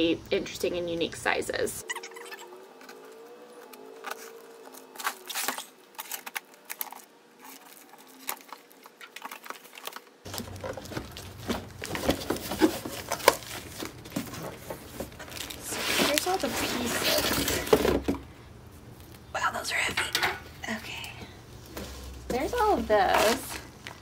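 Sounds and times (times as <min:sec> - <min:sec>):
cardboard crinkling: 0:02.1 - 0:18.1, 0:21.6 - 0:24.0
knife slitting packing tape: 0:03.7 - 0:10.0.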